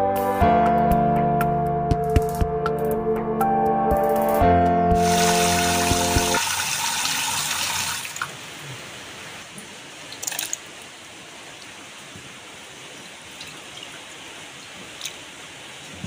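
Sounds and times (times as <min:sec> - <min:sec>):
intro music: 0:00.0 - 0:06.4
water boiling in a pot: 0:05.0 - 0:08.4.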